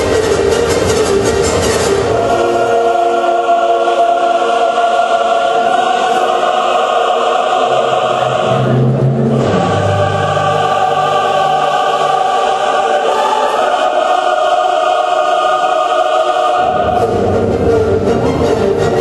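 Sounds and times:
ballet music with held chords: 0.0 - 19.0.

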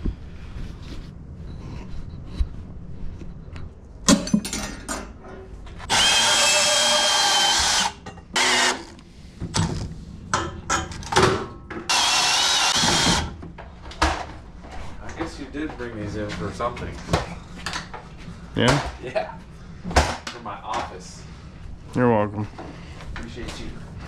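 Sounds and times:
band saw cutting steel pipe: 5.9 - 8.9, 11.9 - 13.2
steady saw whine: 5.9 - 9.0, 11.9 - 13.4.

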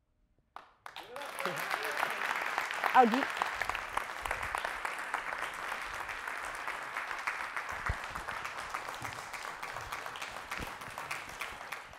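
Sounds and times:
audience applauding: 0.6 - 11.9.

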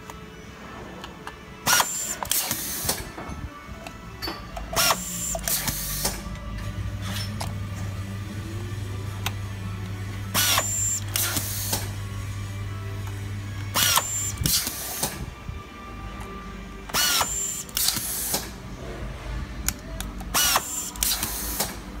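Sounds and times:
electric screwdriver motor whine: 10.4 - 11.5, 13.7 - 14.8, 16.9 - 18.0, 20.4 - 21.5.

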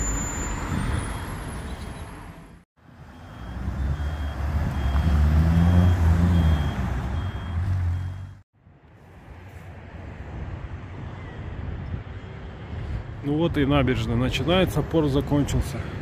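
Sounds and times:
heavy vehicle engine rumbling: 0.0 - 8.4
street traffic: 0.0 - 16.0.

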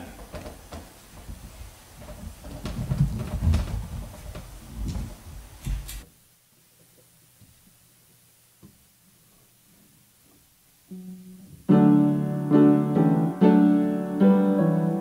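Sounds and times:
microphone handling bumps and rustling: 0.2 - 6.0.

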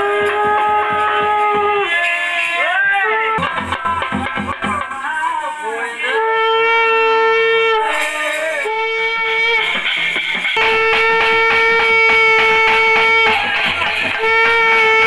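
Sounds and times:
wind instrument long notes: 0.0 - 4.0, 6.0 - 15.0
regular beats: 8.7 - 15.0.

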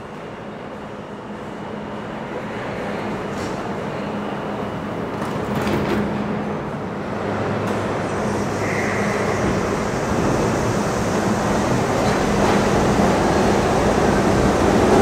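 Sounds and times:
subway train pulling out: 0.0 - 15.0
train clanks: 8.6 - 15.0.

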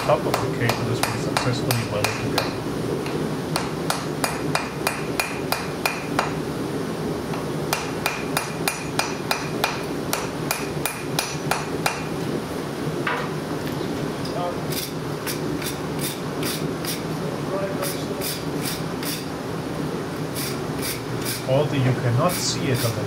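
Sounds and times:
hammer striking steel on anvil: 0.0 - 2.6, 3.6 - 6.4, 7.7 - 12.1
gas forge burner roaring: 0.0 - 23.0.

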